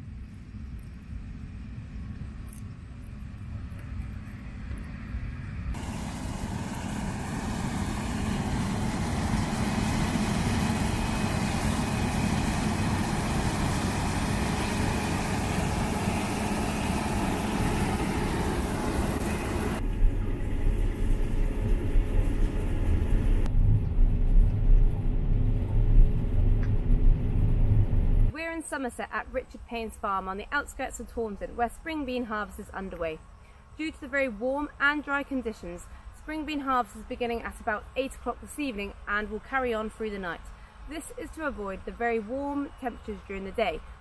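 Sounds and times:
combine harvester running: 0:05.8 - 0:28.3.

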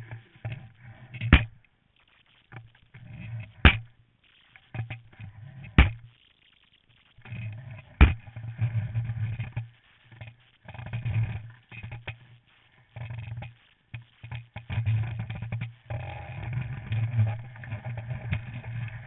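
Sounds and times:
sharp knocks: 0:01.2 - 0:01.6, 0:03.6 - 0:03.9, 0:05.8 - 0:06.0, 0:08.0 - 0:08.2.

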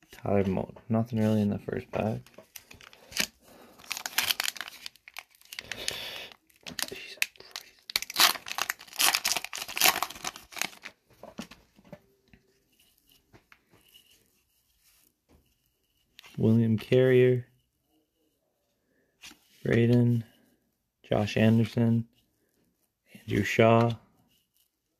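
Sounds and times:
foil wrapper tearing and crinkling: 0:02.6 - 0:10.9.

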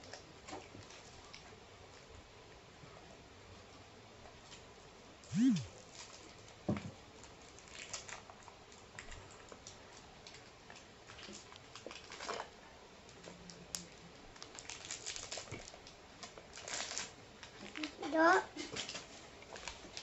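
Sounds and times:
plastic wrappers crinkling: 0:07.2 - 0:12.5, 0:13.1 - 0:20.0.

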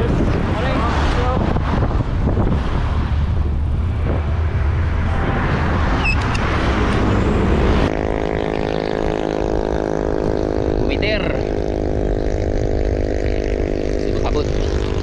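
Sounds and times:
traffic road noise: 0:00.0 - 0:15.0
wind rumbling on microphone: 0:00.0 - 0:15.0.

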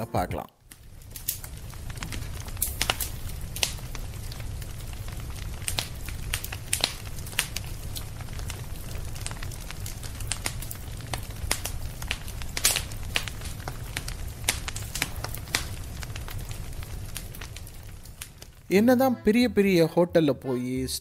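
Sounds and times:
firewood crackling and popping: 0:00.6 - 0:18.9.

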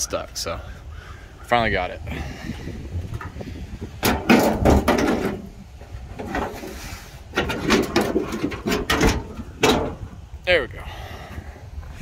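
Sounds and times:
sheet metal scraping and clunking: 0:03.1 - 0:10.2.

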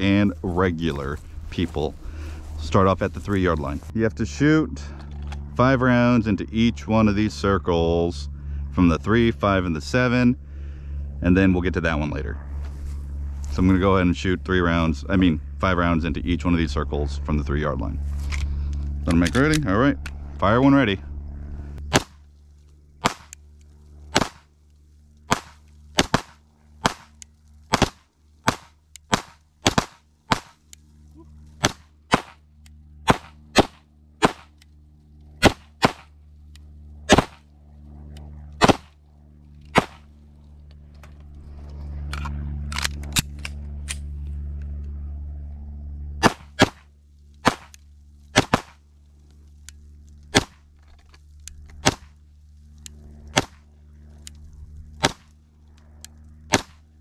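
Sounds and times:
steady low hum: 0:00.0 - 0:57.0
pistol shots: 0:21.9 - 0:22.2, 0:23.0 - 0:23.4, 0:24.1 - 0:24.4, 0:25.3 - 0:30.6, 0:31.6 - 0:32.4, 0:33.0 - 0:34.5, 0:35.4 - 0:36.1, 0:37.1 - 0:37.4, 0:38.6 - 0:38.9, 0:39.7 - 0:40.1, 0:46.2 - 0:46.8, 0:47.4 - 0:47.8, 0:48.4 - 0:48.8, 0:55.0 - 0:55.3, 0:56.5 - 0:56.8.

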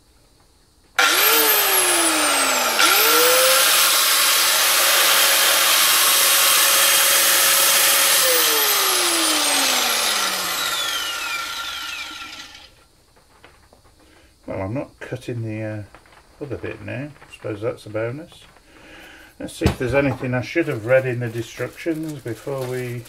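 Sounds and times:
angle grinder whine: 0:01.0 - 0:12.8.

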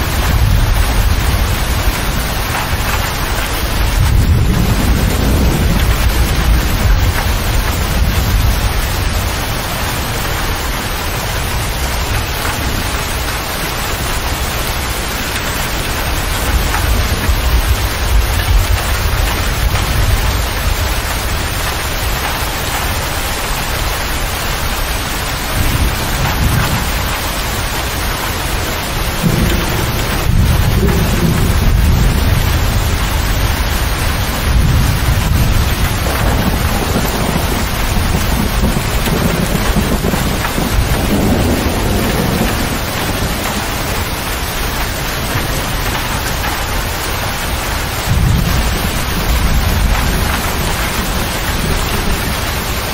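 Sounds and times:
heavy rain on cab roof and glass: 0:00.0 - 0:52.9
low thunder rumbles: 0:00.0 - 0:52.9.

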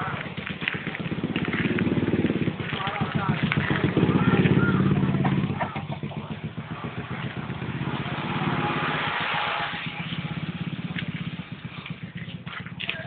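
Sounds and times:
small engine running: 0:00.0 - 0:13.0
rushing hiss: 0:08.4 - 0:10.0.

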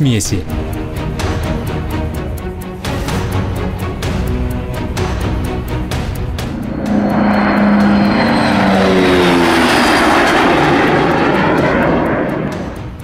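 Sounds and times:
airplane engine drone passing: 0:03.2 - 0:13.0.

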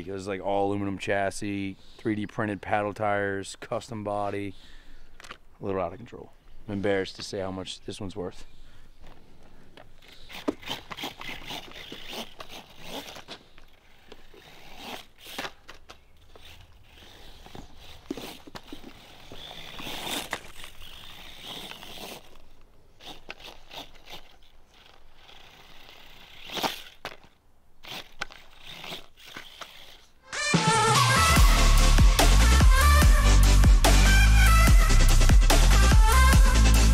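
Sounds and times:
tires scraping and crunching sand: 0:10.2 - 0:30.1.

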